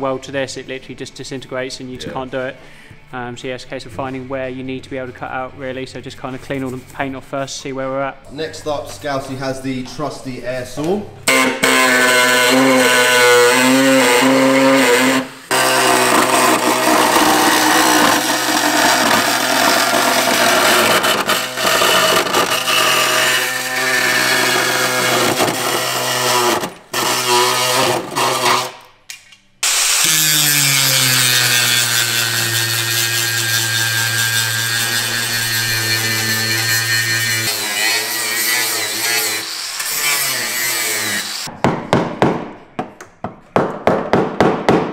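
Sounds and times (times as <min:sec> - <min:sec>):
cutting disc grinding steel: 0:11.3 - 0:28.8, 0:29.6 - 0:41.5.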